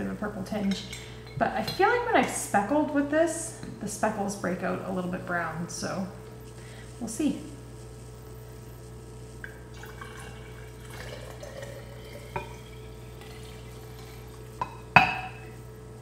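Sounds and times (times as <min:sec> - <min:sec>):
liquid trickling into glass jar: 0:09.4 - 0:14.6.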